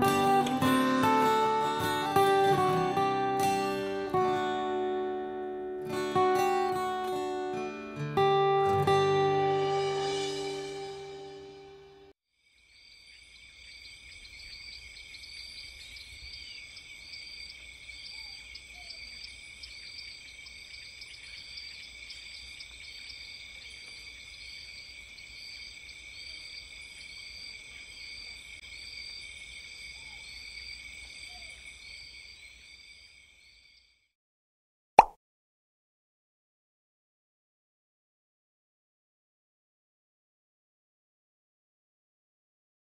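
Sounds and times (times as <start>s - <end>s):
insect chirping: 12.3s - 34.1s.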